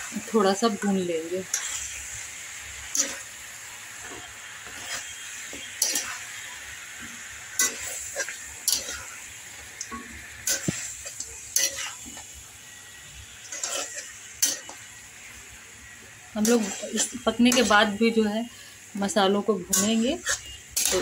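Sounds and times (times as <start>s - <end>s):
chicken sizzling in hot oil: 0.0s - 21.0s
spatula scraping a pan: 4.0s - 9.2s, 9.8s - 12.3s, 13.3s - 14.9s, 16.4s - 17.9s, 19.7s - 21.0s.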